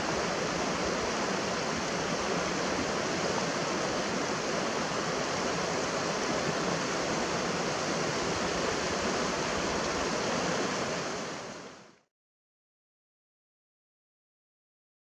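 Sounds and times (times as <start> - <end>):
mountain stream rushing: 0.0 - 11.9.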